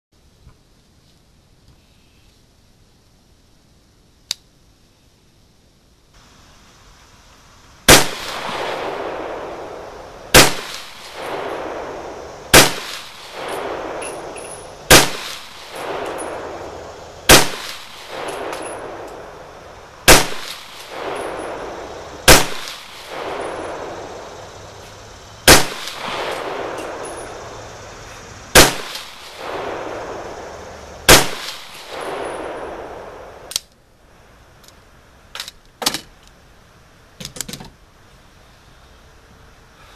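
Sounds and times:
gunshots with long echo: 7.9 - 24.8, 25.4 - 33.5
small clicks: 33.5 - 33.8.

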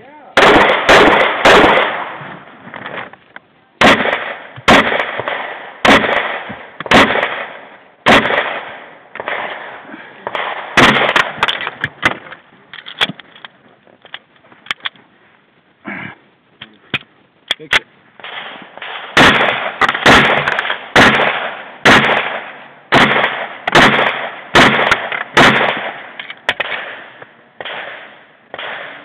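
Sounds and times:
pistol shots echoing: 0.4 - 2.2, 3.8 - 12.2, 18.2 - 29.0.

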